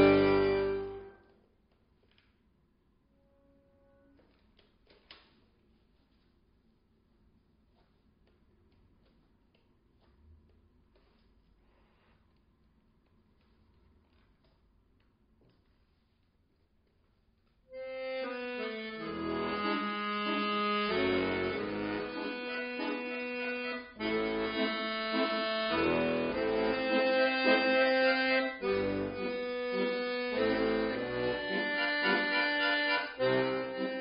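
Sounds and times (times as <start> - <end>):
button accordion playing chords: 0.0 - 1.2, 17.7 - 34.0.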